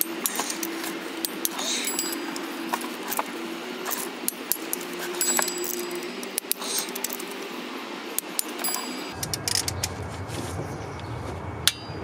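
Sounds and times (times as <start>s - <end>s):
ratchet wrench clicking on bolts: 1.4s - 2.4s, 3.9s - 7.4s, 8.2s - 9.8s.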